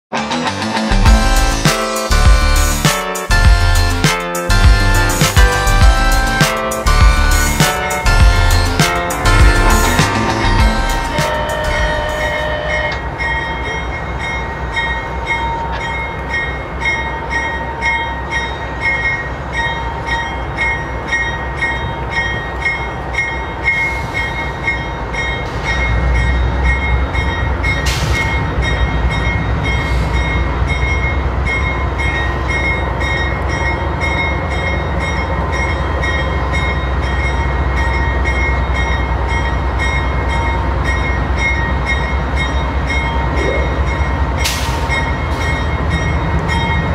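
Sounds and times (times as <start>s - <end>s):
high whine: 0.1s - 13.4s
diesel locomotive engine rumble: 0.1s - 46.9s.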